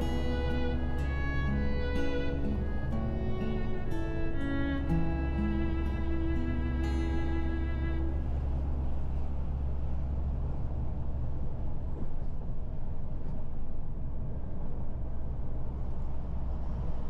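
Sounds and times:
truck engine drone: 0.0 - 17.0
tyre and road noise: 0.0 - 17.0.

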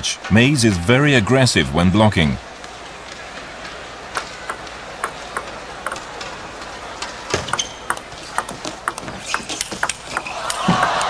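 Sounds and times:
table tennis ball clicking: 4.1 - 11.0.

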